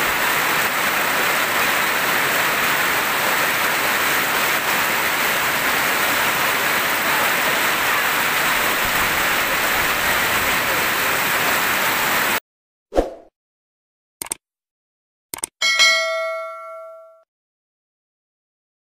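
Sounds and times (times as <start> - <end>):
heavy rain on corrugated roof: 0.0 - 12.4
quick clicks: 14.2 - 14.4, 15.3 - 15.6.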